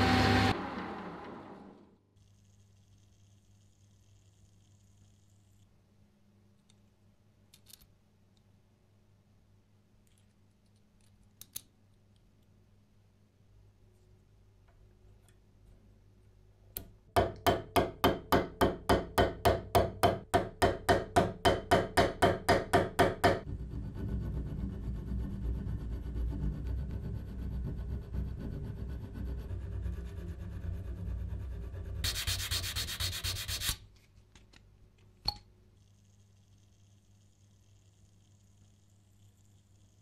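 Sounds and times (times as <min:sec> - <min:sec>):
sanding rub on metal: 0:23.5 - 0:33.8
hand file on steel: 0:32.0 - 0:33.8.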